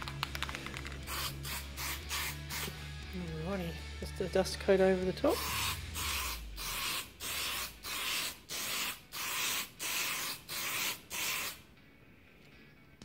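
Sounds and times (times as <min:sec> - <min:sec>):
aerosol can spraying: 0:00.1 - 0:03.0, 0:05.3 - 0:11.6.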